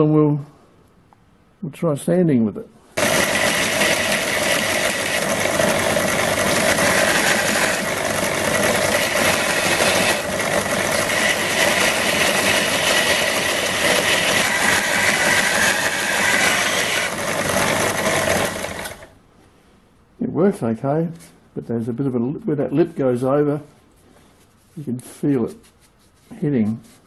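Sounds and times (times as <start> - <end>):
belt sander grinding steel: 3.0 - 19.2
electric motor hum: 3.0 - 19.2.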